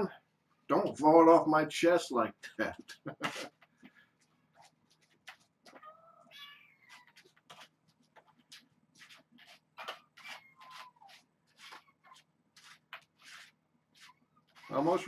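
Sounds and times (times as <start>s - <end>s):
kittens meowing: 5.7s - 7.3s, 10.2s - 12.2s.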